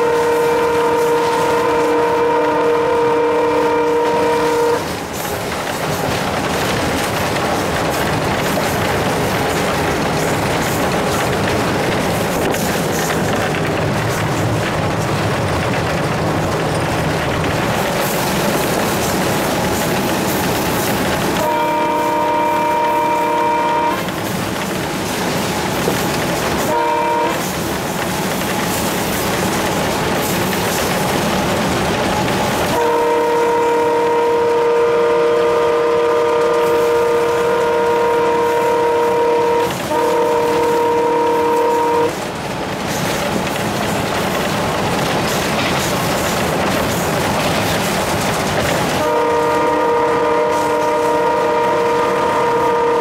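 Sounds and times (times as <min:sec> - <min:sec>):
locomotive air horn: 0:00.0 - 0:04.9, 0:21.4 - 0:24.2, 0:26.6 - 0:27.5, 0:32.7 - 0:42.2, 0:49.0 - 0:53.0
diesel locomotive engine and rail noise: 0:00.0 - 0:53.0.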